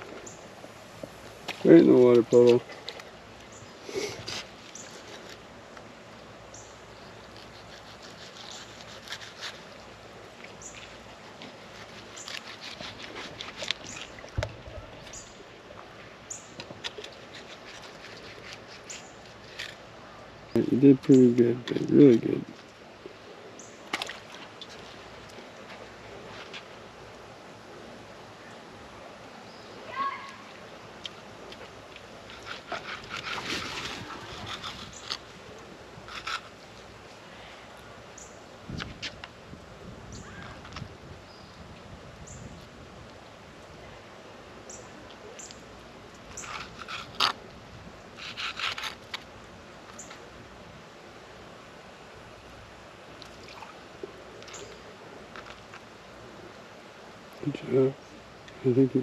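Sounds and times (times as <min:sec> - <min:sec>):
knife scraping on concrete: 0:07.3 - 0:09.7, 0:32.3 - 0:35.3
knife cutting fish fillet: 0:07.4 - 0:09.6.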